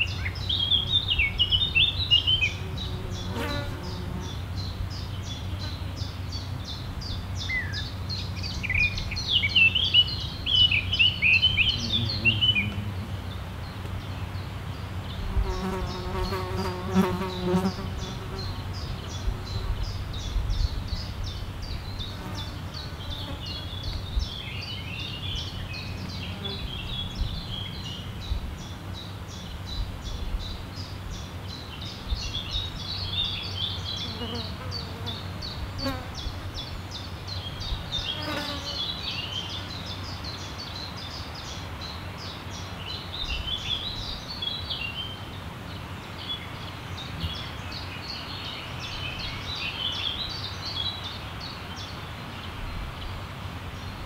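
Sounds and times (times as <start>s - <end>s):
songbirds chirping: 0.0s - 54.0s
flying insect buzzing: 2.5s - 4.4s, 15.2s - 18.6s.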